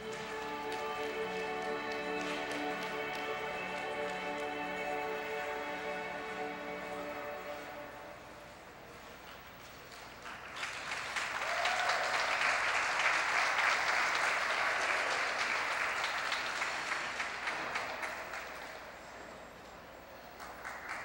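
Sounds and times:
spectators applauding: 0:00.0 - 0:07.7, 0:09.6 - 0:19.0, 0:20.1 - 0:21.0.

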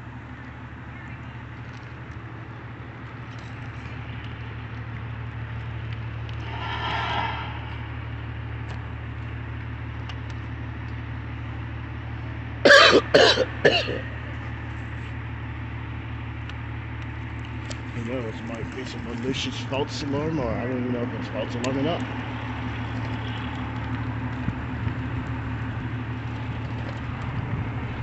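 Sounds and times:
idling vehicle engines hum: 0:00.0 - 0:28.0
person coughing: 0:12.7 - 0:14.1.

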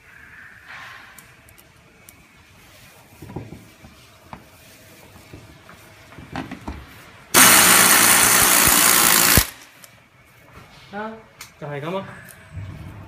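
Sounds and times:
power drill running: 0:07.4 - 0:09.7.

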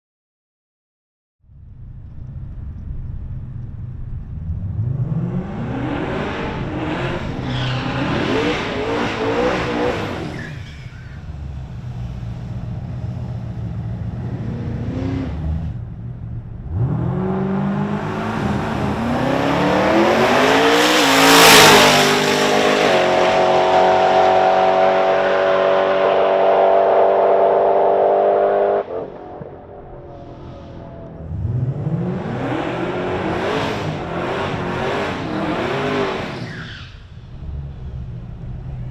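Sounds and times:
car engine revving: 0:01.8 - 0:38.9
tyre squeal: 0:07.4 - 0:11.4, 0:36.3 - 0:37.2.

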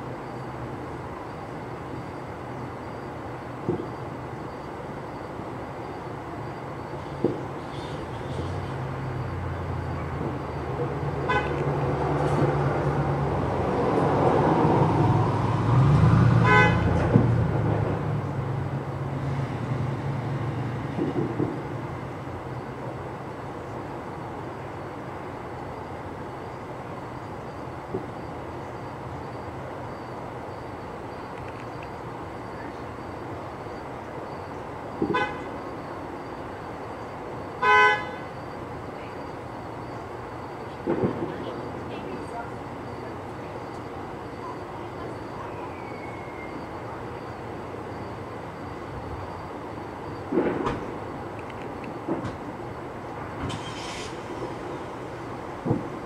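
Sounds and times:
steady background noise: 0:00.0 - 0:56.0
vehicle horn honking: 0:11.2 - 0:11.6, 0:16.4 - 0:17.0, 0:35.1 - 0:35.5, 0:37.6 - 0:38.3.

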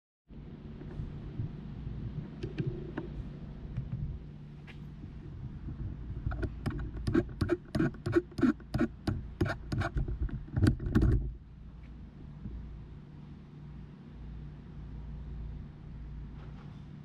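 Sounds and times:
low steady rumble: 0:00.3 - 0:17.0
rapid sharp clicks and knocks: 0:06.2 - 0:11.3.

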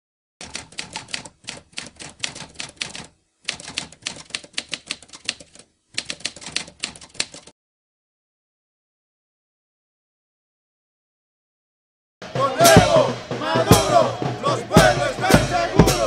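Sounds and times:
typewriter keys clacking: 0:00.4 - 0:07.5.

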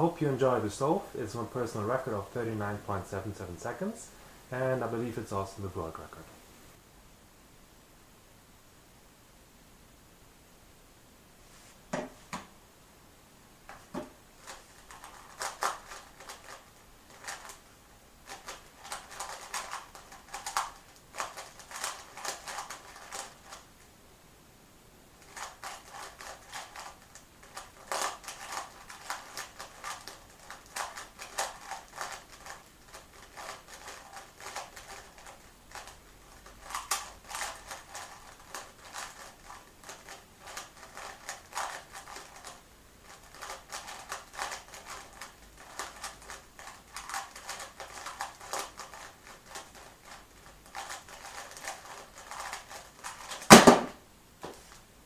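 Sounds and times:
plastic puzzle cube clicking: 0:14.4 - 0:17.6, 0:18.3 - 0:23.6, 0:25.2 - 0:53.6.

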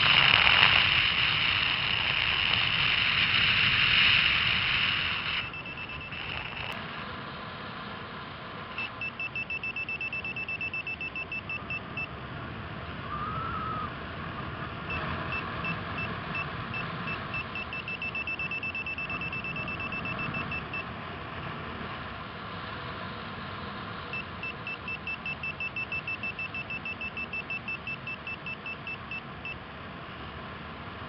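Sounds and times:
wind noise: 0:00.0 - 0:06.8
variometer beeping: 0:05.1 - 0:06.8, 0:08.7 - 0:12.1, 0:14.9 - 0:20.9, 0:24.1 - 0:29.6.

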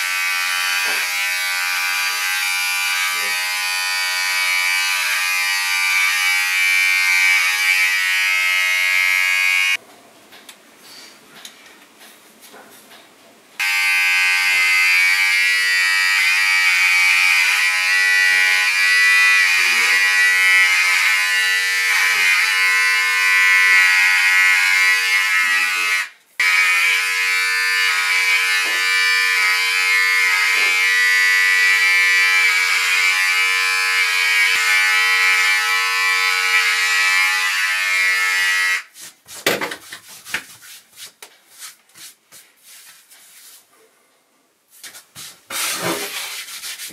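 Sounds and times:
electric hair clipper buzzing: 0:00.0 - 0:09.8, 0:13.6 - 0:38.9.

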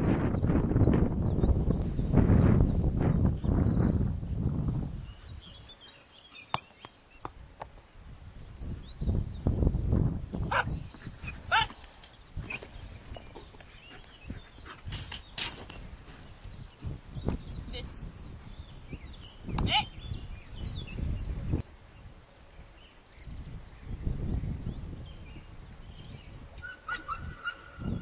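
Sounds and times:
wind gusts on microphone: 0:00.0 - 0:05.9, 0:07.1 - 0:28.0
dog barking: 0:10.5 - 0:10.8, 0:26.9 - 0:27.7.

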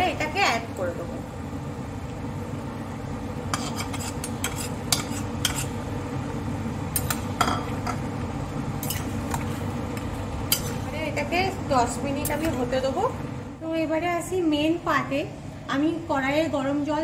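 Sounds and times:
metal spoon scraping bowl: 0:03.5 - 0:05.8, 0:10.5 - 0:10.9.

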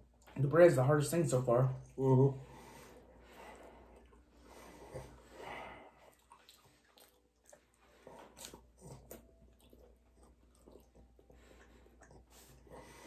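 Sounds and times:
breathing: 0:02.4 - 0:06.2, 0:11.2 - 0:13.0
faint chewing: 0:02.6 - 0:13.0.

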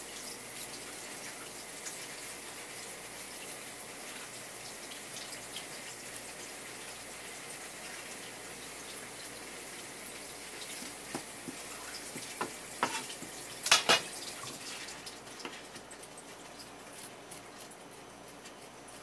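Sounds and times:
running water hiss: 0:00.0 - 0:16.8
knife scraping fish: 0:11.2 - 0:13.3
sharp knocks on cutting board: 0:12.2 - 0:13.0.

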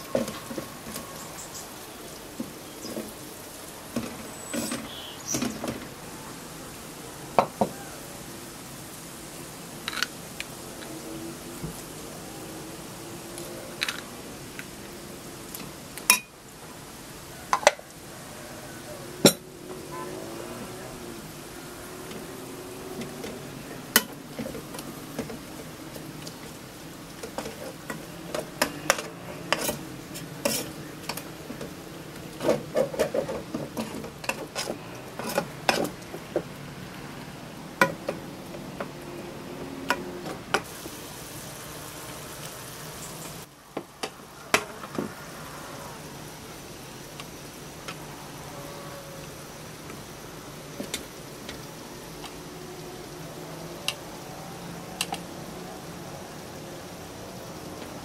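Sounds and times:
utensils clinking against metal pot: 0:16.1 - 0:16.4, 0:17.5 - 0:17.8, 0:19.2 - 0:20.0, 0:27.2 - 0:31.2, 0:32.4 - 0:36.0.

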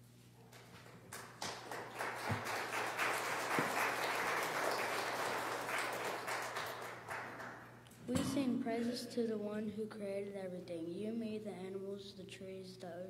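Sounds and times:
audience applauding: 0:00.8 - 0:07.7.

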